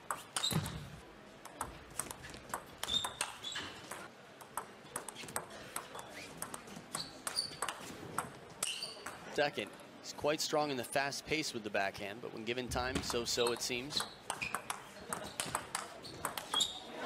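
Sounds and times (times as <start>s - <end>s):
table tennis ball clicking: 1.4s - 9.2s, 13.4s - 16.7s.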